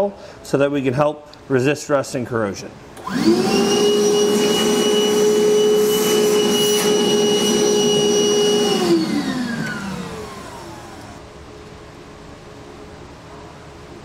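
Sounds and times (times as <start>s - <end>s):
shop vacuum motor whine: 3.0s - 11.2s.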